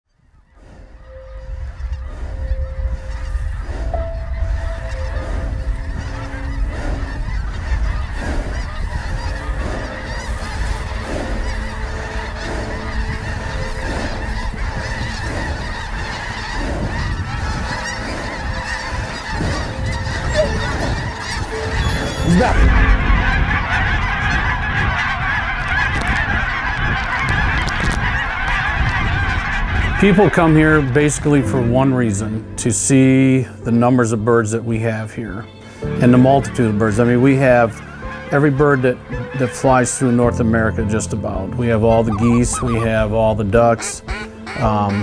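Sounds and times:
flock of geese honking: 0.1 - 45.0
low rumble: 0.5 - 15.7, 16.6 - 30.0.

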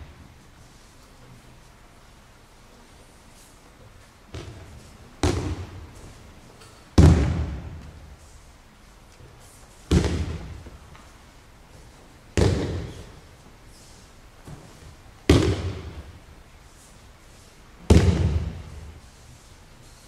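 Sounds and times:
impact echoing in large hall: 0.0 - 1.5, 2.8 - 20.0
body slapping down on mats: 12.4 - 13.1, 17.9 - 18.8.

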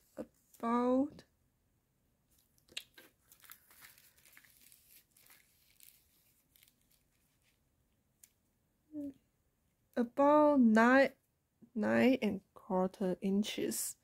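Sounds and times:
plastic film crinkling: 2.7 - 7.6.

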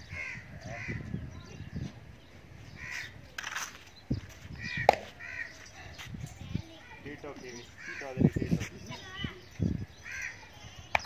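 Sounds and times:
crows cawing: 0.0 - 1.1, 2.8 - 3.1, 4.6 - 6.0, 7.8 - 8.2, 10.0 - 10.5.

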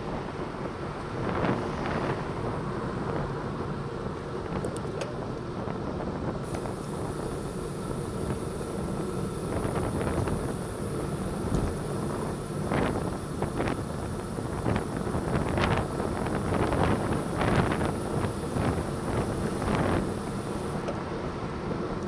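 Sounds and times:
wind buffeting microphone: 7.8 - 20.8.

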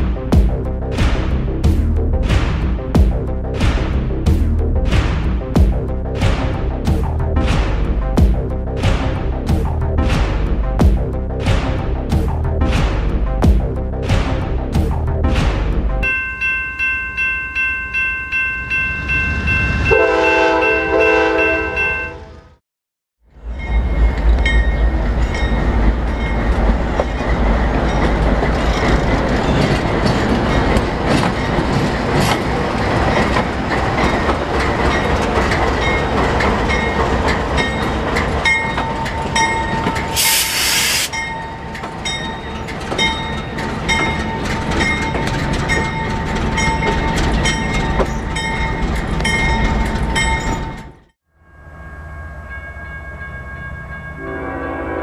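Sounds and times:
intro music: 0.0 - 16.1
diesel locomotive engine rumble: 23.3 - 51.1
wheel and rail noise: 23.3 - 54.2
short hiss: 40.2 - 41.1.

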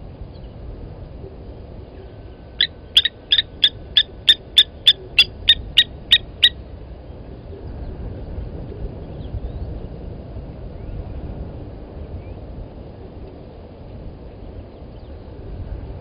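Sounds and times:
bird alarm calls metallic tink: 2.6 - 6.5.

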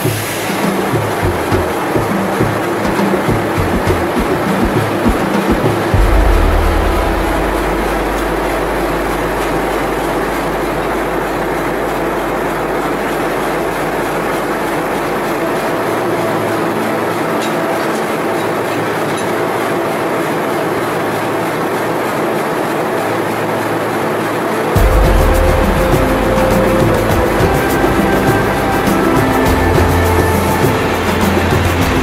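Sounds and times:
diesel locomotive idling: 5.9 - 18.6.

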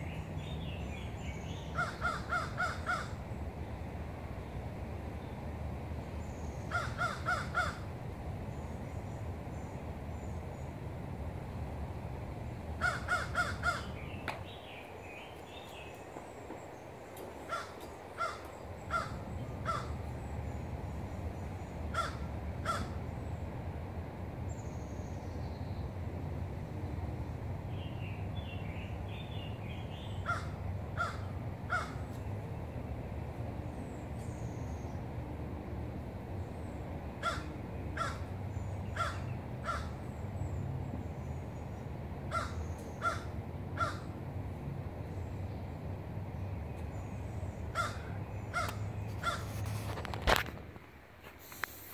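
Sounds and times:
low rumble of wind: 0.0 - 51.9
crows cawing: 1.8 - 3.2, 6.7 - 7.9, 12.8 - 14.0, 17.4 - 20.0, 21.9 - 23.0, 30.2 - 32.1, 37.2 - 38.3, 39.0 - 40.0, 42.3 - 44.2, 47.7 - 49.6
small birds chirping: 13.4 - 22.0.

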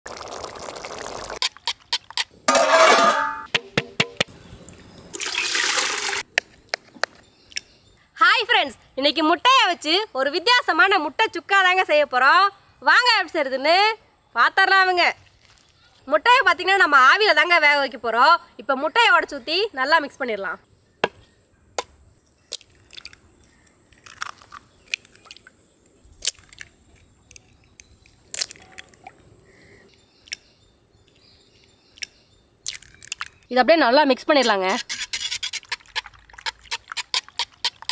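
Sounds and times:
water splashing into metal pot: 0.1 - 1.4, 2.5 - 3.5
shells crunching and crackling: 22.5 - 25.5, 26.2 - 29.1, 32.0 - 33.5
eggshells cracking: 23.9 - 25.5, 26.2 - 29.1, 32.0 - 33.5.

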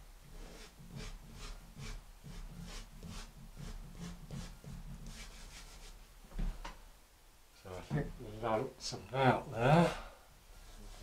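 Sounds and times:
pastel rubbing on paper: 0.3 - 6.0.

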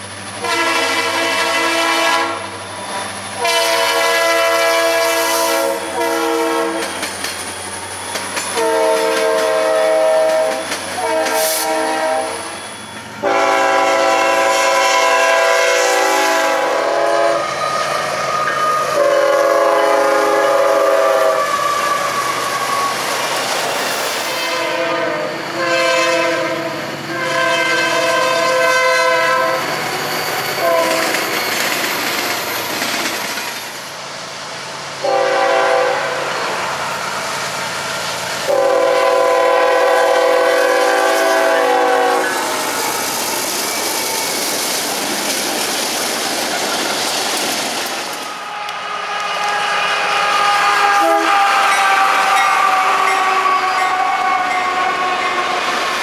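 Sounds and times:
freight train rumble and clatter: 0.0 - 56.0
locomotive air horn blasts: 0.4 - 6.9, 8.5 - 12.6, 13.2 - 17.6, 18.6 - 22.1, 24.3 - 29.7, 30.6 - 31.3, 35.0 - 36.4, 38.4 - 43.0, 48.3 - 55.7.

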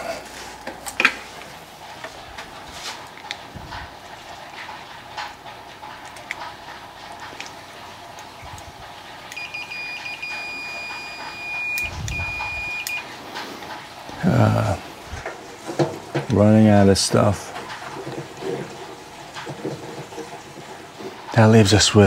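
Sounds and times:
multimeter high beep: 9.3 - 13.0.

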